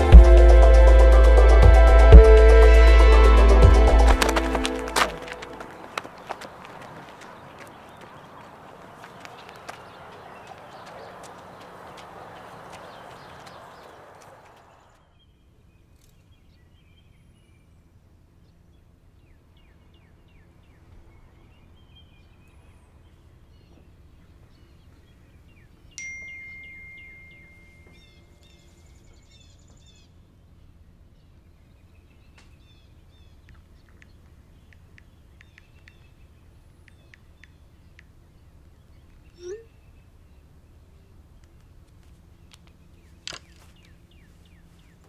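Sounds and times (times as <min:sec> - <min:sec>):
high bird chirps: 0:07.2 - 0:15.4, 0:25.9 - 0:30.1, 0:39.0 - 0:40.0
low steady hum: 0:15.0 - 0:45.0
bell-like ding: 0:26.0 - 0:28.1.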